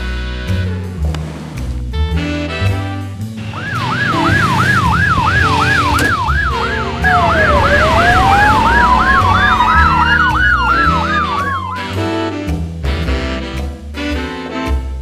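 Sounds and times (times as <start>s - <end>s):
music: 0.0s - 15.0s
police siren yelping: 3.4s - 12.1s
siren wailing: 3.4s - 12.1s.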